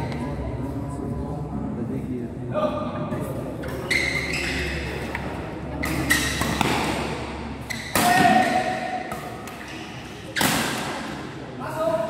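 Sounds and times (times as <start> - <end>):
rackets hitting shuttlecock: 4.2 - 11.3.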